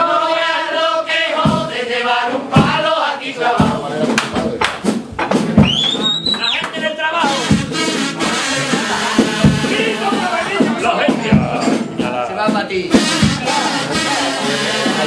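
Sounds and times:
chorus singing together: 0.0s - 4.6s, 7.3s - 15.0s
bass drum beat: 1.4s - 1.8s, 2.5s - 15.0s
shrill whistle: 5.6s - 9.1s.

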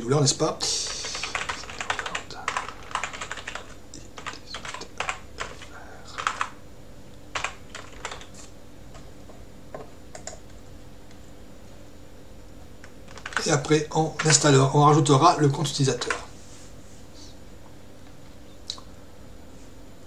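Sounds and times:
typing on computer keyboard: 0.8s - 6.6s, 7.3s - 8.5s, 10.1s - 10.5s, 13.1s - 13.6s, 14.2s - 14.5s, 16.0s - 16.3s.

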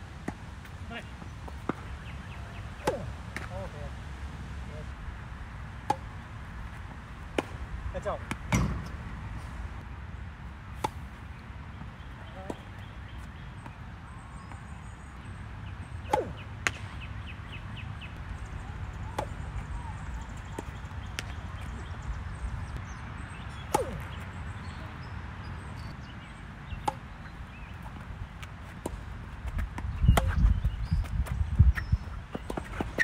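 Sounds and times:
tennis ball hit by rackets: 1.5s - 3.6s, 5.8s - 6.2s, 7.3s - 7.6s, 8.2s - 9.2s, 10.8s - 11.1s, 16.0s - 17.1s, 19.1s - 21.7s, 23.6s - 24.7s, 28.8s - 30.4s.

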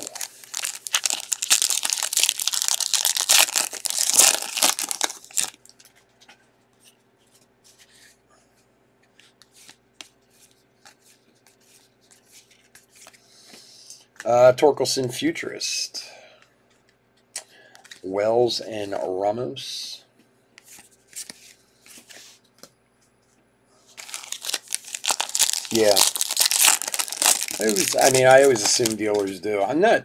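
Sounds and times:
foil wrapper tearing and crinkling: 0.0s - 5.7s, 24.0s - 29.4s.

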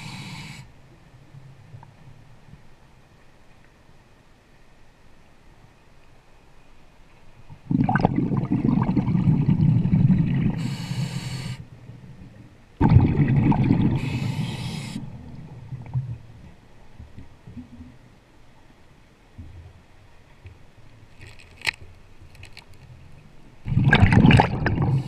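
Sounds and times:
regulator hiss: 0.0s - 0.7s, 10.6s - 11.6s, 14.0s - 15.2s
bubbles rushing underwater: 7.6s - 10.6s, 12.8s - 14.4s, 23.7s - 25.0s.

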